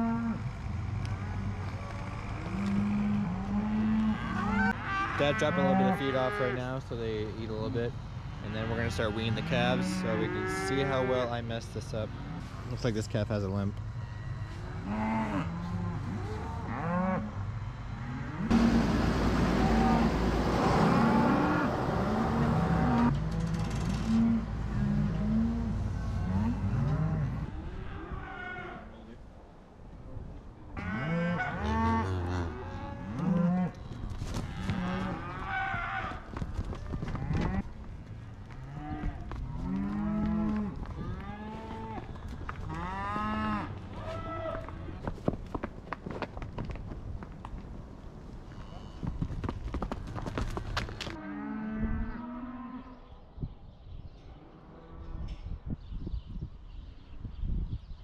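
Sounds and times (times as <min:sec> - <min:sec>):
cattle mooing: 0:00.0 - 0:06.8, 0:08.4 - 0:11.4, 0:14.0 - 0:17.3, 0:18.0 - 0:28.9
tractor rumbling: 0:00.0 - 0:14.9, 0:17.6 - 0:27.6.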